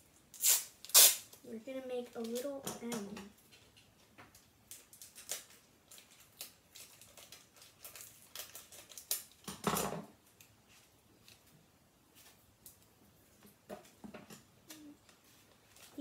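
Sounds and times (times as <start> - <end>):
tape crinkling in fingers: 0.3 - 1.4, 3.4 - 9.5.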